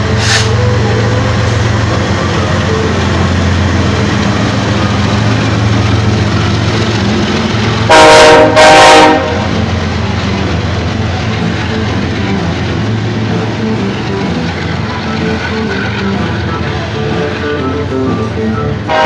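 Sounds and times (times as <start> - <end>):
diesel locomotive engines droning: 0.0 - 19.0
locomotive air horn blasts: 7.9 - 9.6, 17.5 - 19.0.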